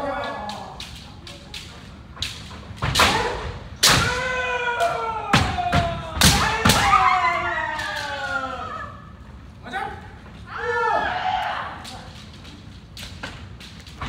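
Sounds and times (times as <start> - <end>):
people shouting: 0.0 - 1.1, 3.0 - 12.2
bamboo sword strikes: 2.8 - 4.3.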